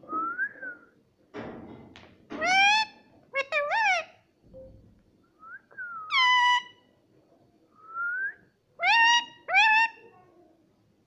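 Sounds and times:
parakeet calling: 6.1 - 6.8.

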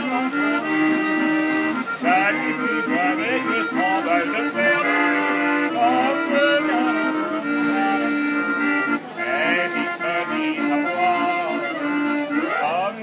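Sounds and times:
barrel organ playing a tune: 0.0 - 13.0.

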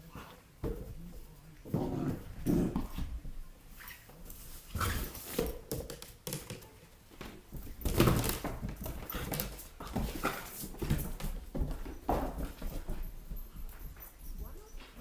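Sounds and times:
puppy scuffling with balloon: 1.8 - 5.8.

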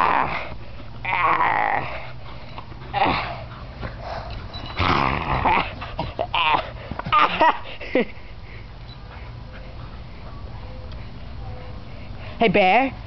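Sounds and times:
dogs growling and whining: 0.0 - 7.5.

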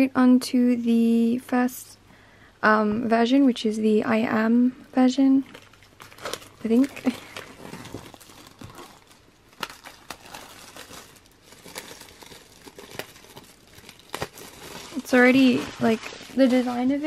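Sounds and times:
album packaging crinkling: 5.4 - 17.0.

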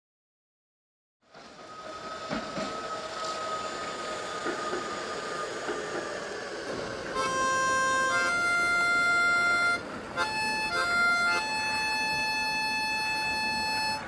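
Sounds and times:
harmonica playing held chords: 7.2 - 14.0.

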